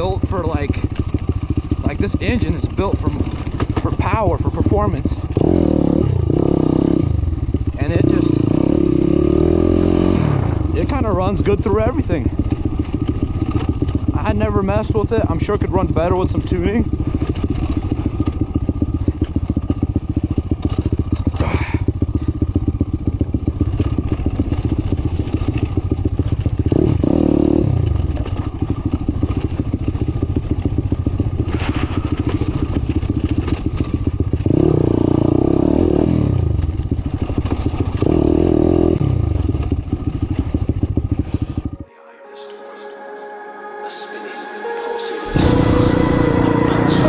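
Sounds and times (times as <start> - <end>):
motorbike engine revving: 0.0 - 41.9, 45.2 - 47.0
bike clattering over bumps: 3.2 - 4.0, 27.9 - 34.6.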